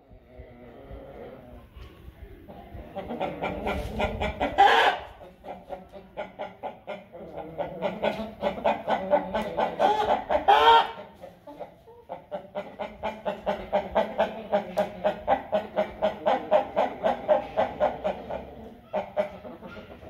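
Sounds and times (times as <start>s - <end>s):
chickens clucking: 0.0s - 20.0s
chicken drawn-out call: 3.2s - 5.3s, 7.8s - 11.0s.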